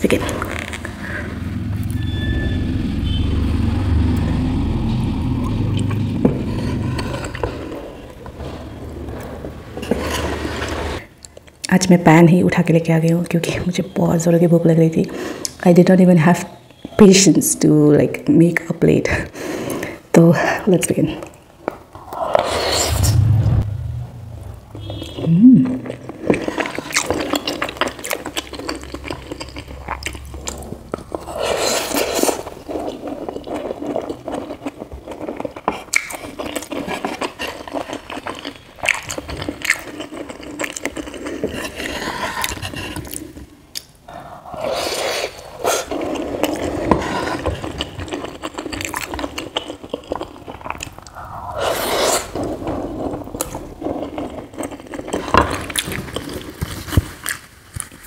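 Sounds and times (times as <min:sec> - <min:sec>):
wet chewing and mouth smacks: 0:25.7 - 0:44.0, 0:45.8 - 0:51.3.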